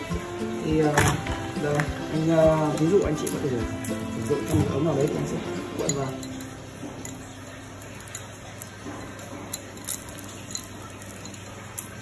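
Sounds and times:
metal chain links clicking: 2.6s - 12.0s.

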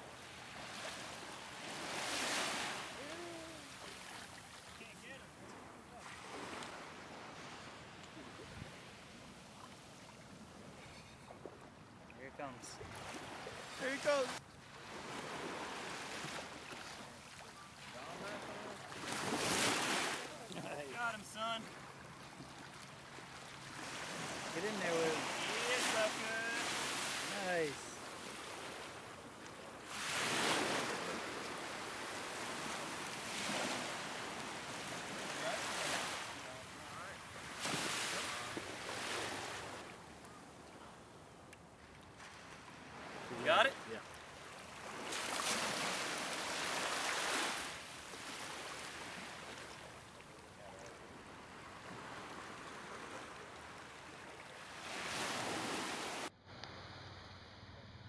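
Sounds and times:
surf washing around legs: 0.0s - 11.5s, 12.8s - 14.4s, 15.0s - 40.0s, 42.2s - 50.1s
small waves breaking: 0.0s - 57.2s.

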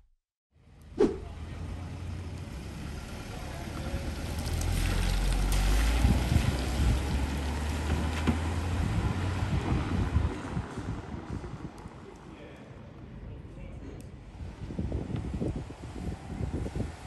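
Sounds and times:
car engine driving past: 1.0s - 11.5s.

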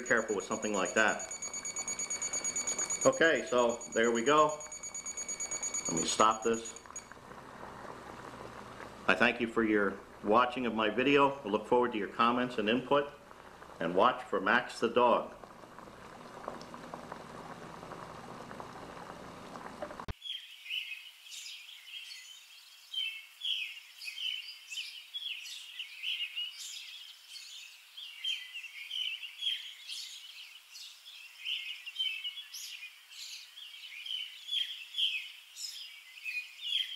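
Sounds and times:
birds chirping: 0.0s - 13.8s
water boiling in pot: 0.0s - 20.2s.

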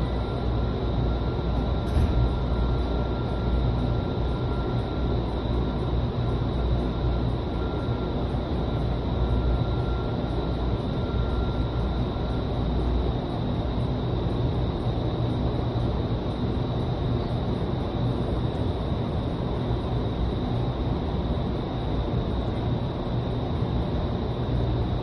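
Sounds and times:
faint high whine: 0.0s - 25.0s
rush of air and fan noise: 0.0s - 25.0s.

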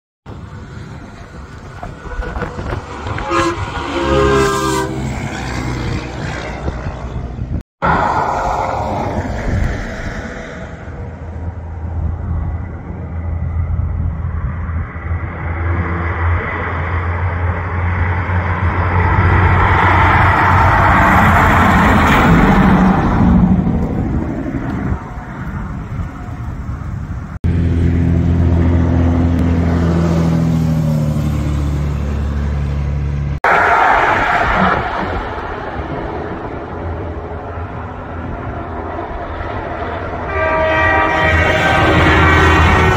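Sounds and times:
traffic noise: 0.3s - 42.9s
trucks passing on highway: 0.3s - 42.9s
truck air horn: 2.0s - 5.6s, 40.2s - 42.9s.

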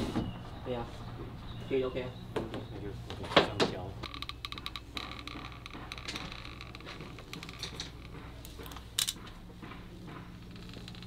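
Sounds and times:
caulking gun clicking and creaking: 4.0s - 9.4s.

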